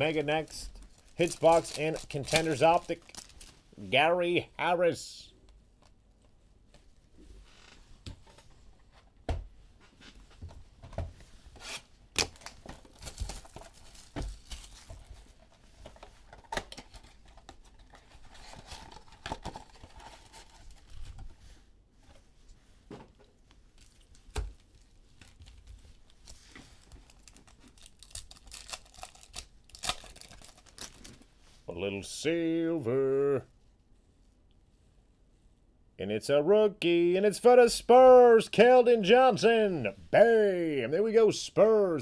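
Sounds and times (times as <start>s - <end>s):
card wrappers tearing and crinkling: 0.0s - 3.6s, 11.6s - 15.2s, 16.4s - 21.2s, 26.8s - 31.2s.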